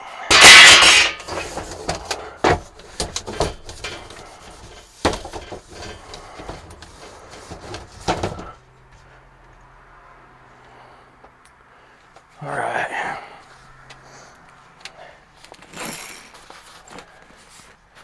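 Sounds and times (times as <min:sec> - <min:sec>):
panels knocking and rattling: 0:00.3 - 0:08.6.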